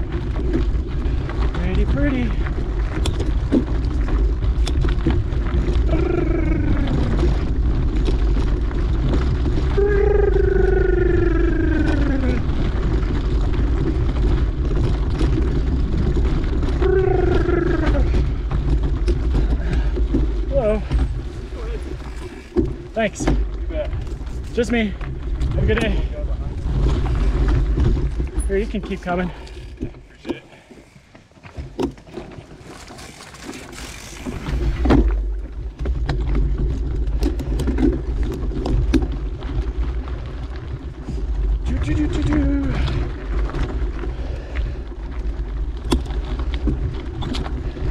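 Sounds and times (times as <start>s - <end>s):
bike clicks and rattles: 0.0s - 47.9s
bike tyres rumbling on dirt: 0.0s - 47.9s
person calling out: 5.9s - 7.2s, 9.7s - 12.5s, 16.8s - 18.2s.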